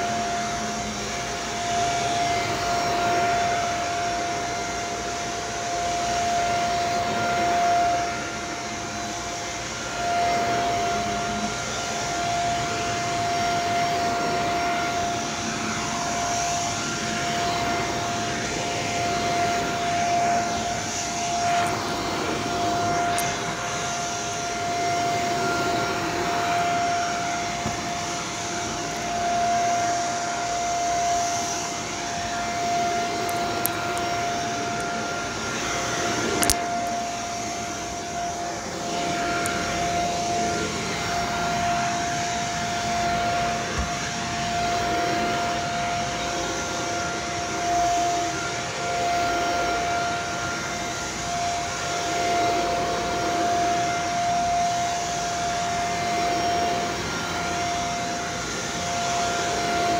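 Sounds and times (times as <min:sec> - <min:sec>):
vacuum cleaner running: 0:00.0 - 0:59.9.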